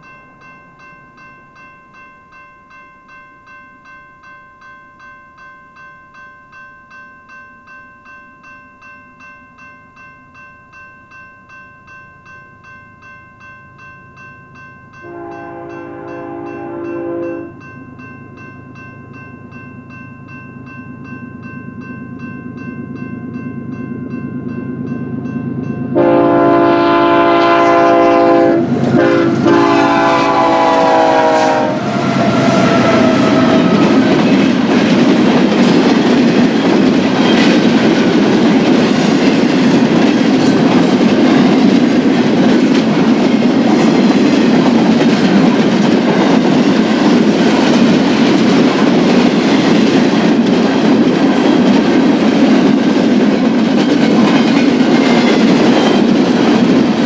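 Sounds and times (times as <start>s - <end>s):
locomotive air horn chord: 15.0s - 17.6s, 26.0s - 34.0s
train wheels rumbling on rails: 24.1s - 57.0s.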